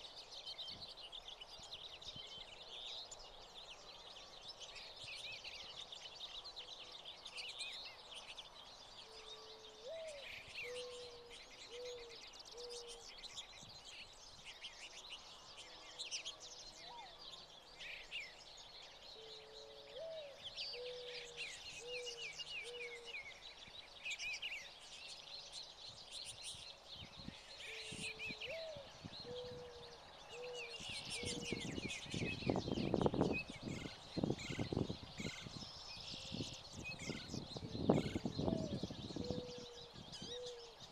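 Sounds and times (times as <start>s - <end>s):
finches twittering and chirping: 0.0s - 40.9s
lower bird call: 19.2s - 23.4s.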